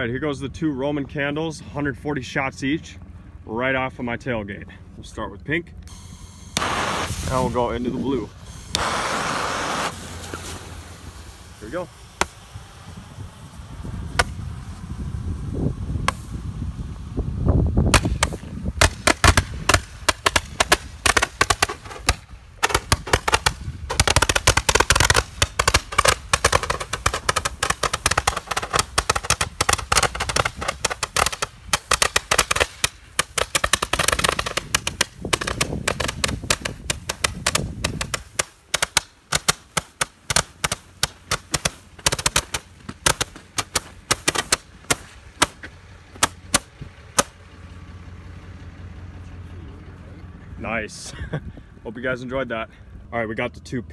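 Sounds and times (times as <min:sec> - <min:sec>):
roman candles popping: 0:17.9 - 0:45.6.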